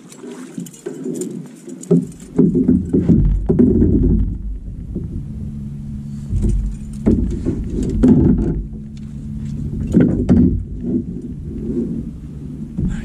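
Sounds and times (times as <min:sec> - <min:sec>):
boat motor running: 0:00.7 - 0:13.0
heavy thumps and knocks: 0:01.9 - 0:05.3, 0:06.3 - 0:09.0, 0:09.7 - 0:11.4, 0:12.7 - 0:13.0.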